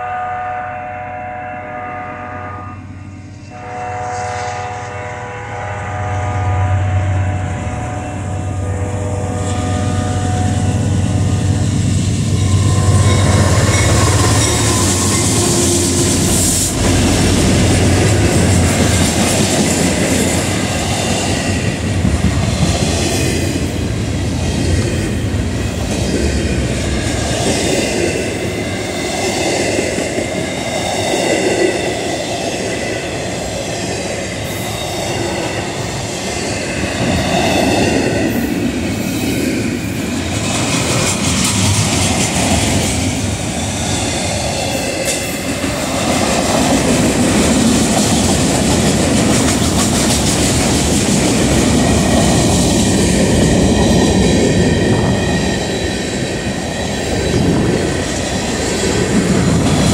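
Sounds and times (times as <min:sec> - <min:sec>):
locomotive air horn blasts: 0:00.0 - 0:11.8
diesel locomotive engine drone: 0:00.0 - 0:59.9
train wheels clicking over rail joints: 0:39.8 - 0:59.9.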